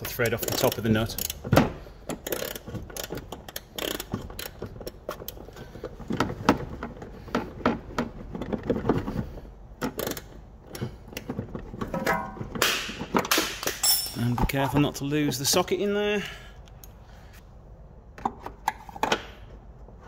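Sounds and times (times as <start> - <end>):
metal socket scraping on nut: 2.1 - 4.6.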